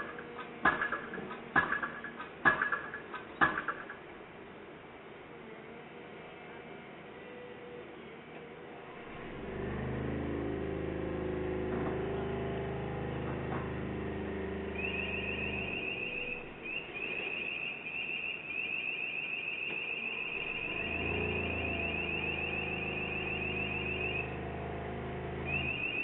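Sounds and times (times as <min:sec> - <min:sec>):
engine knocks: 0:00.0 - 0:04.1, 0:09.1 - 0:17.0, 0:20.4 - 0:26.0
diesel engine revving: 0:09.0 - 0:16.8, 0:20.2 - 0:26.0
high-pitched chirping alarm: 0:14.7 - 0:24.4, 0:25.4 - 0:26.0.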